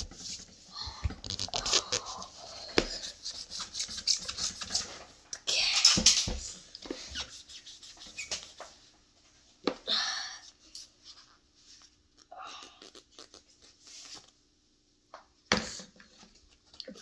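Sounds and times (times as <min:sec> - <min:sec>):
foam sponge scrubbing plastic: 0:01.3 - 0:05.0.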